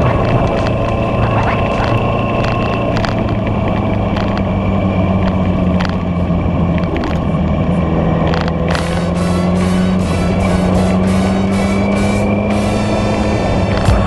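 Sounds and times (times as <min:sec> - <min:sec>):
sharp clicks: 0:00.0 - 0:04.5
road and wind noise: 0:00.0 - 0:14.0
vehicle engine running: 0:00.0 - 0:14.0.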